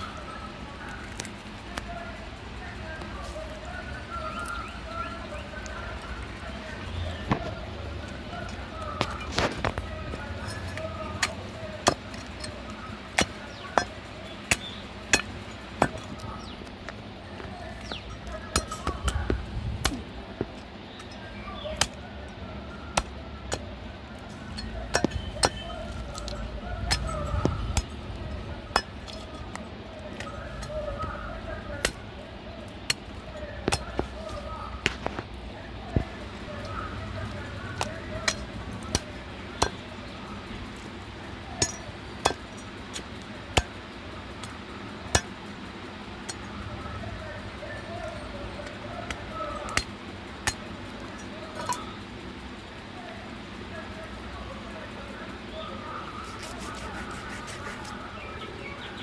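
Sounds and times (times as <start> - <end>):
cleaver chopping meat and bone: 10.8 - 16.6, 17.8 - 22.0, 22.9 - 23.8, 24.4 - 29.4, 31.7 - 32.0, 32.8 - 35.2, 37.3 - 39.9.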